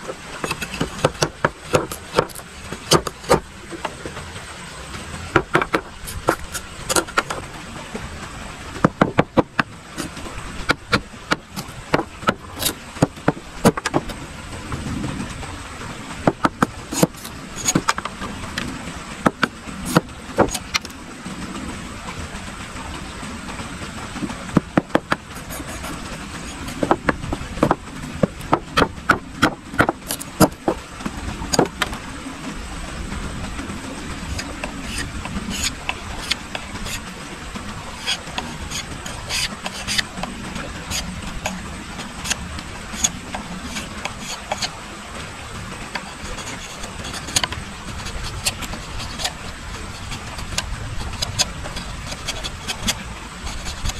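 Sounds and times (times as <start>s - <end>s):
machete chopping bamboo: 0.5s - 3.5s.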